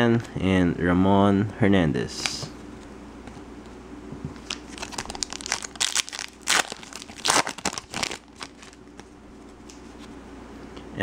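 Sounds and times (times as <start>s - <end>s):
plastic wrapper crinkling and tearing: 4.4s - 9.1s.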